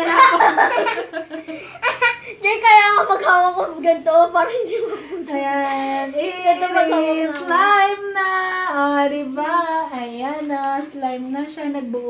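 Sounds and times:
girl singing unaccompanied: 5.3 - 9.9.

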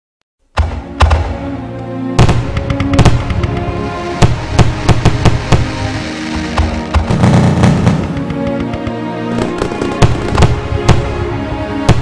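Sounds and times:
music: 0.4 - 12.0
fireworks banging: 2.2 - 12.0.

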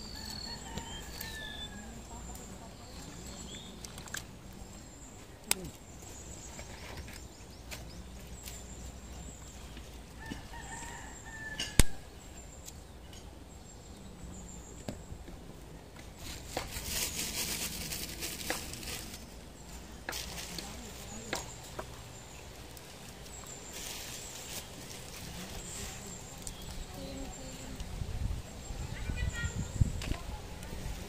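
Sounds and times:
rooster crowing: 0.0 - 2.0, 10.2 - 12.1.

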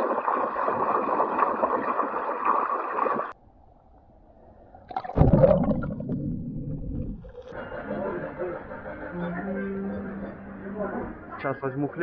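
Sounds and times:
water splashing: 0.0 - 3.4, 4.8 - 7.6.

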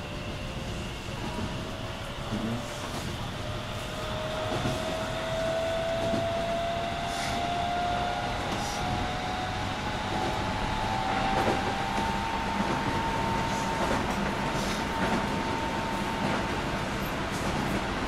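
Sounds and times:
train wheel and running noise: 0.0 - 18.0.

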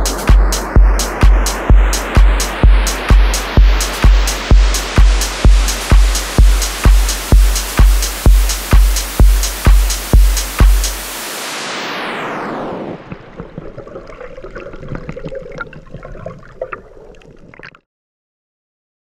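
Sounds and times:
electronic dance music: 0.0 - 13.1
underwater rushing with crackling clicks: 13.0 - 17.8.

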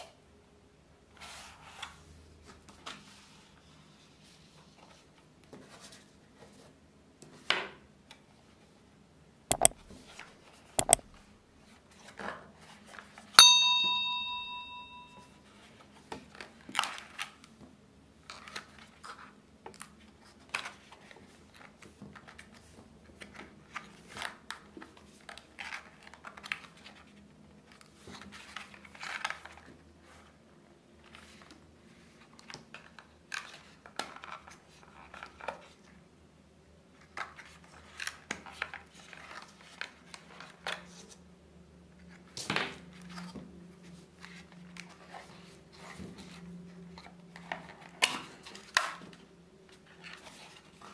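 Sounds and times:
metallic ding: 9.5 - 9.7, 10.8 - 11.0, 13.4 - 15.3.

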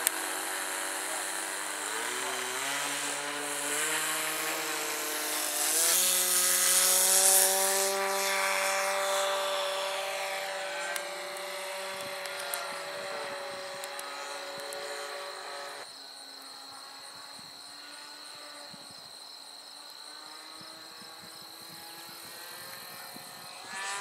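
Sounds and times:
model airplane engine revving: 0.0 - 18.9, 20.2 - 24.0.

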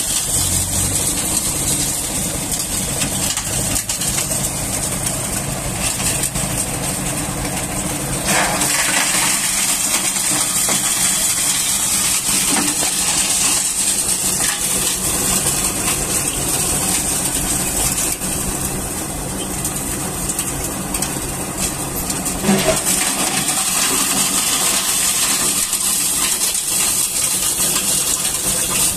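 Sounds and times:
coal crusher rattling: 0.0 - 28.9
engine running: 0.0 - 28.9
loud coal clatter: 0.0 - 28.9.

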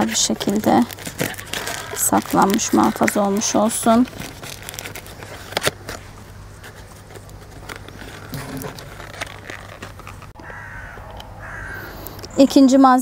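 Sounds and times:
crow cawing: 1.4 - 3.7, 10.4 - 12.1.

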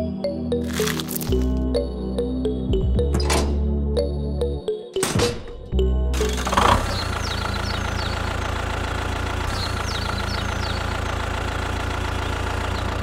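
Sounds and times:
diesel engine idling: 6.2 - 13.0.

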